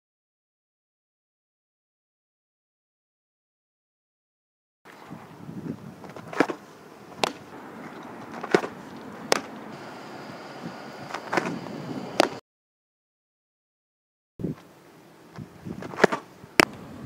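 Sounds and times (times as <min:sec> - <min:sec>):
outdoor background noise: 0:04.9 - 0:12.4, 0:14.4 - 0:17.0
ball smacking into mitt: 0:06.1 - 0:07.4, 0:08.4 - 0:09.5, 0:15.8 - 0:16.7.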